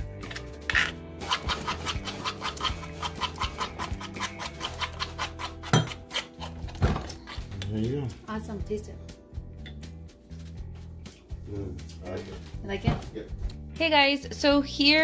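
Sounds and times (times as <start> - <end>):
metal utensil grinding paste in stone bowl: 0.2 - 7.6
knock against stone bowl: 5.7 - 6.0.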